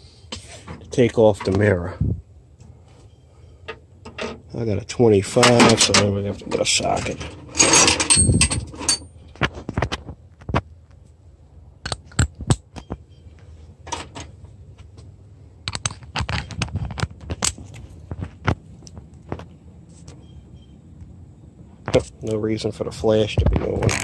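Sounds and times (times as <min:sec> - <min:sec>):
scraping rattle of tools: 0:06.8 - 0:09.1
metal sockets clinking in drawer: 0:07.1 - 0:09.1.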